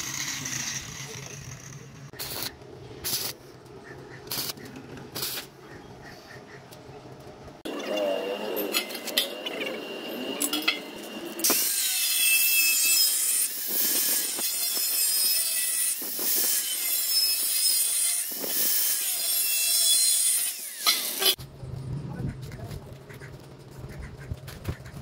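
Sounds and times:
angle grinder cutting metal: 0.0 - 3.4, 7.6 - 21.4.

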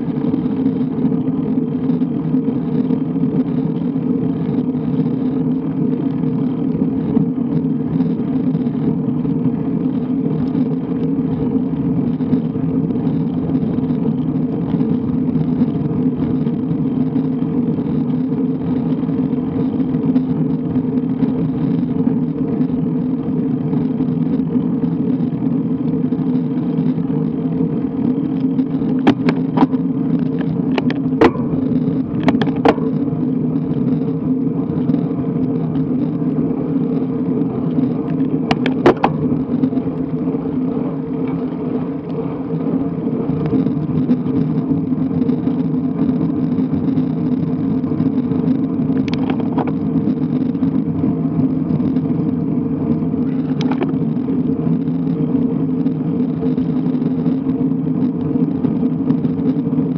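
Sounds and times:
bike tyres rumbling on tarmac: 0.0 - 59.9
wind on microphone: 0.0 - 59.9.

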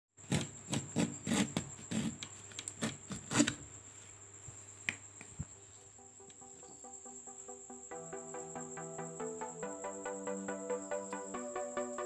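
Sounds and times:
hand plane scraping wood: 0.3 - 3.6.

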